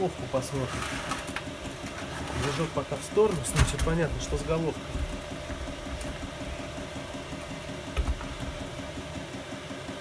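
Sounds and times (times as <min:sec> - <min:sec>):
engine idling pulse: 0:03.0 - 0:10.0.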